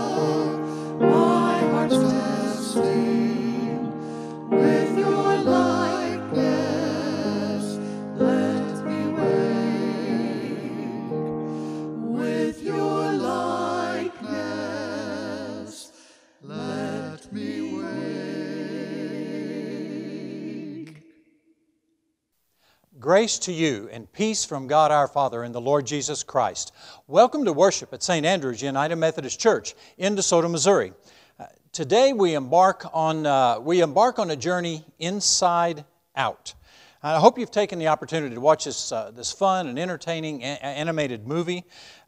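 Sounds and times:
mixed choir singing a hymn: 0:00.0 - 0:21.2.

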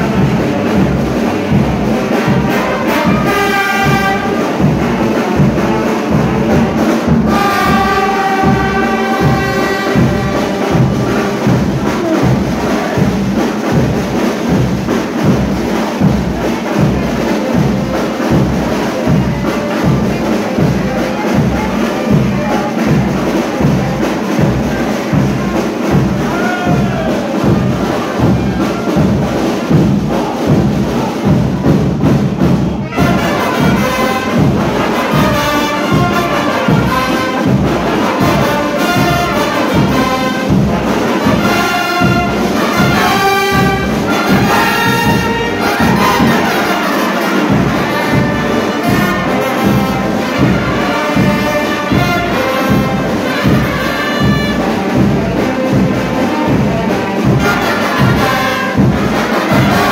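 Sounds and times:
brass band playing: 0:00.0 - 0:59.9
drums keeping a beat: 0:00.0 - 0:59.9.

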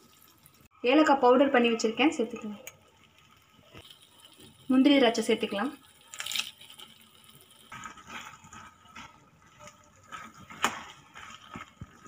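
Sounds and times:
metal spoon stirring and scraping: 0:03.7 - 0:12.0.

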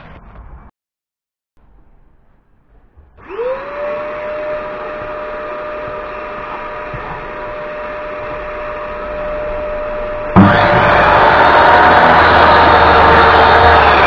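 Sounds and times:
shop vacuum motor whine: 0:03.2 - 0:14.0.

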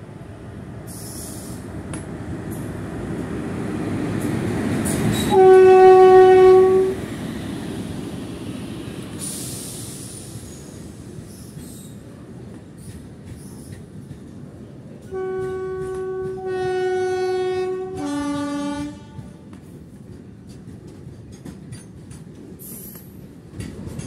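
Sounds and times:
freight train rumbling past: 0:00.0 - 0:24.0
locomotive horn blast: 0:05.3 - 0:07.0, 0:15.1 - 0:19.4.

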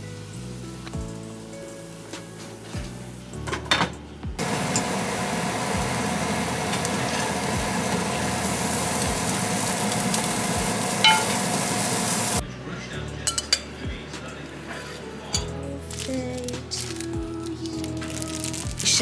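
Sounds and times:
rice sizzling in a skillet: 0:00.0 - 0:03.4, 0:04.4 - 0:12.4.

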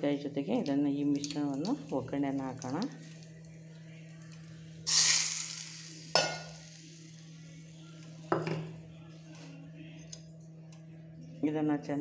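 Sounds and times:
hot oil sizzling: 0:04.8 - 0:07.3
metal pan clinking: 0:06.2 - 0:06.6.

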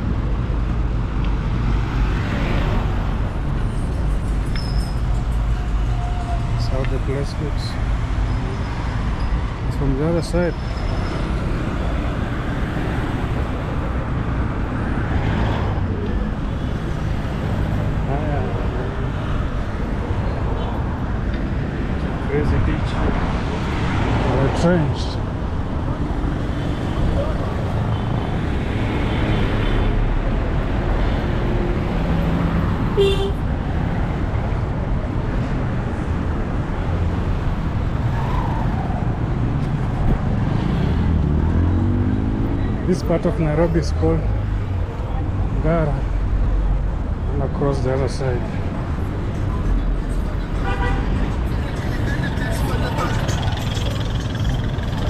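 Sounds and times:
road traffic rumble: 0:00.0 - 0:55.0
short car horn toot: 0:33.0 - 0:33.4
vehicle passing by: 0:37.0 - 0:45.3.

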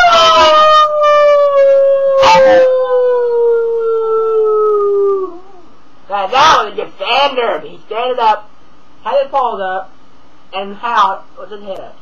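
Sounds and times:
dog howling: 0:00.0 - 0:05.7.

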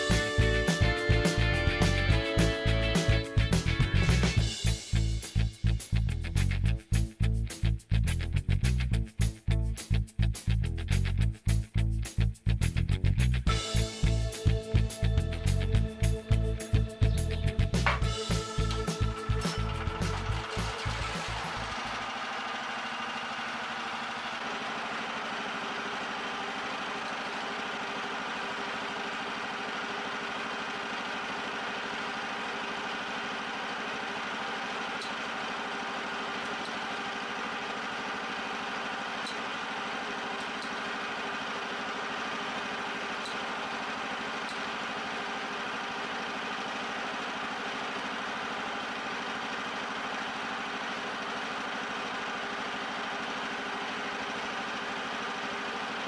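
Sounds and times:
small petrol engine idling: 0:13.5 - 0:56.0.

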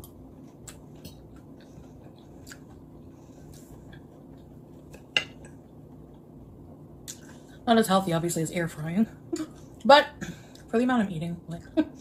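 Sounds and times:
person chewing food: 0:00.0 - 0:07.5
low steady hum: 0:00.0 - 0:12.0
wet mouth clicks: 0:02.4 - 0:02.7.

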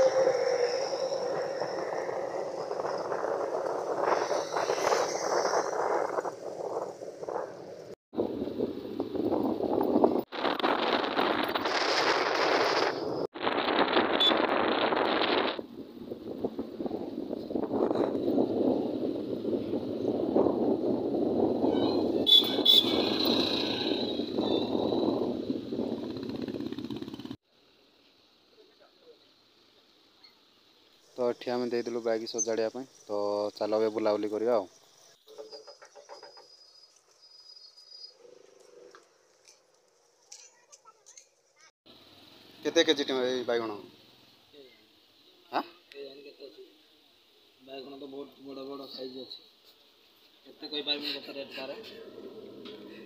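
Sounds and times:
wind rush: 0:00.0 - 0:27.4
road and traffic noise: 0:00.0 - 0:53.0
vehicle horn toots: 0:21.7 - 0:24.8
motorcycle engine: 0:22.2 - 0:27.4.

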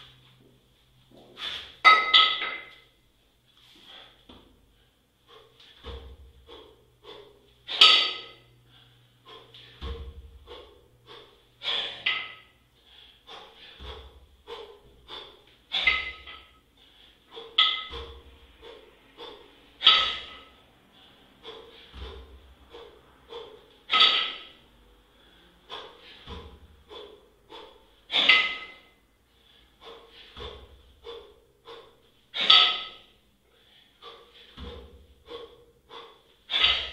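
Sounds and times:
person breathing hard: 0:01.1 - 0:01.9, 0:03.6 - 0:36.9
kettlebell thud: 0:01.2 - 0:02.8, 0:05.7 - 0:08.5, 0:09.3 - 0:12.6, 0:13.3 - 0:16.6, 0:17.2 - 0:29.0, 0:29.8 - 0:33.1, 0:34.0 - 0:36.9.

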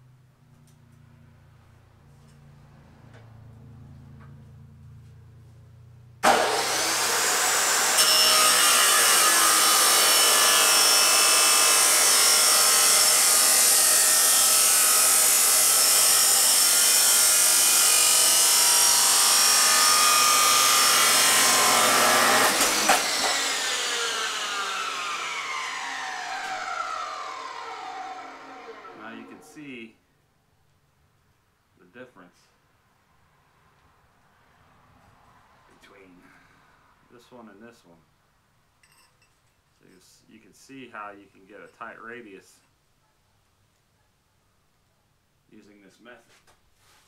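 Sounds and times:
chop saw cutting steel pipe: 0:06.2 - 0:29.6.

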